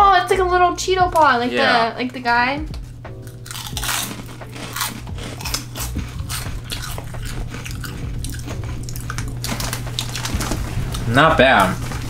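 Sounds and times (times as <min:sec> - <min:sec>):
corn snacks crunching: 0:03.2 - 0:12.0.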